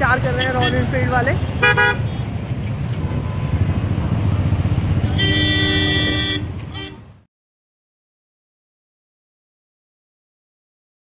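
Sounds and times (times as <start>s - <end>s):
motorcycle engines rumbling: 0.0s - 7.3s
vehicle horn honking: 1.6s - 2.2s, 5.0s - 7.1s.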